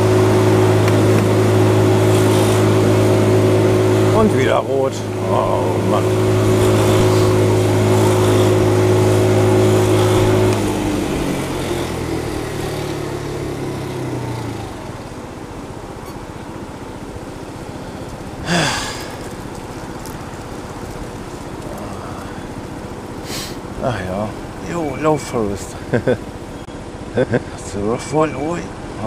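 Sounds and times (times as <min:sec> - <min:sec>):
sharp rising sound: 0:00.0 - 0:15.2
street noise: 0:00.0 - 0:29.0
vehicle engine idling: 0:00.0 - 0:29.0.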